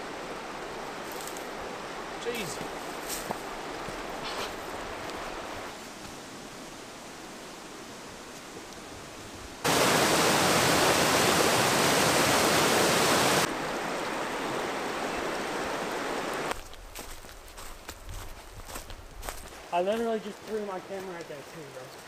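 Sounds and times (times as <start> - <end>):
waterfall cascade: 0.0 - 16.6
river running over stones: 0.0 - 17.2.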